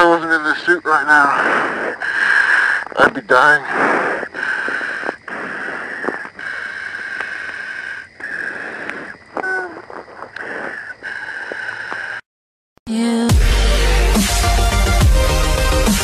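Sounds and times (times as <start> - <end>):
steady hiss in helmet: 1.2 - 2.8, 3.4 - 9.2
breathing: 1.3 - 9.4, 10.2 - 12.3.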